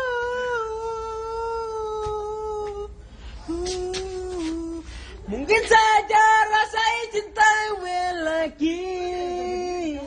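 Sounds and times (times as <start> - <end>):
man singing long notes: 0.0 - 10.0
breath: 3.0 - 3.5, 4.8 - 5.2.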